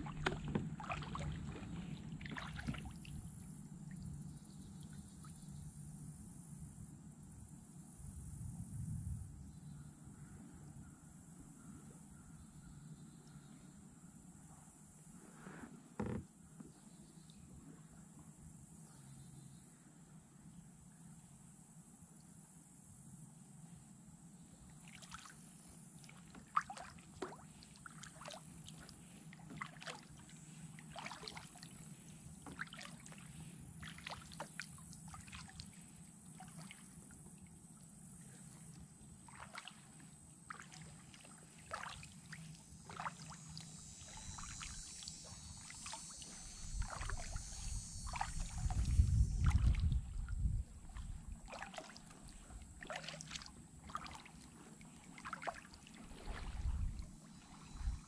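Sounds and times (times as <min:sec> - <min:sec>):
kayak paddle splashing: 0:00.0 - 0:04.1, 0:24.8 - 0:37.4, 0:38.3 - 0:58.0.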